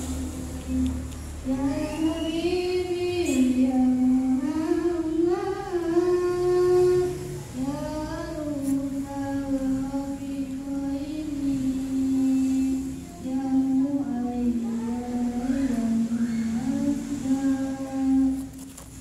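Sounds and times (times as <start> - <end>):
child singing into microphone: 0.0 - 18.6.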